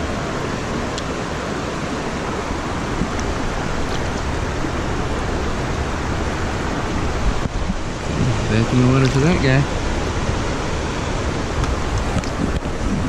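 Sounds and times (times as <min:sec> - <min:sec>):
rocky stream flowing: 0:00.0 - 0:13.0.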